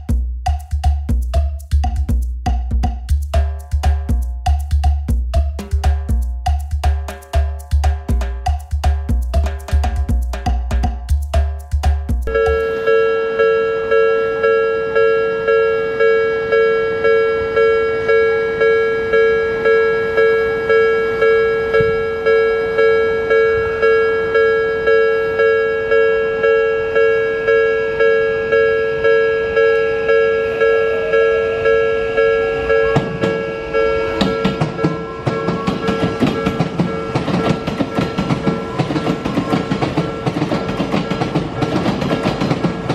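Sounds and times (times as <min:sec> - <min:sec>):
approaching train whine: 0:12.3 - 0:42.9
level crossing alarm bells ringing: 0:12.3 - 0:42.9.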